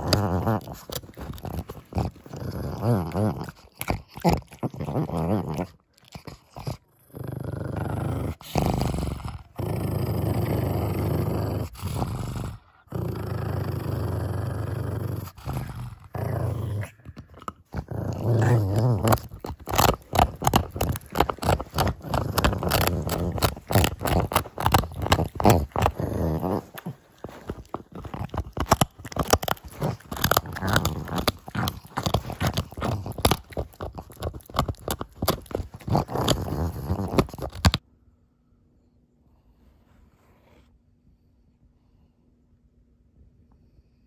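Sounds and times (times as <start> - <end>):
dog gnawing a chew: 0.0 - 37.8
dog growling: 0.0 - 37.8.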